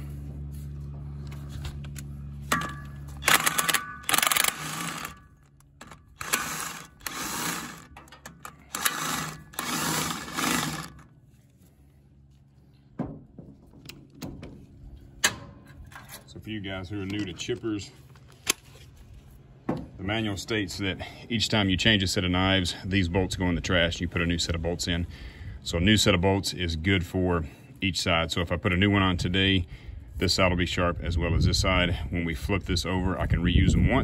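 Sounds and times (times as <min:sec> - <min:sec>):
steady low hum: 0:00.0 - 0:34.0
impact wrench hammering: 0:02.5 - 0:11.0
sharp metal clicks: 0:02.5 - 0:11.1.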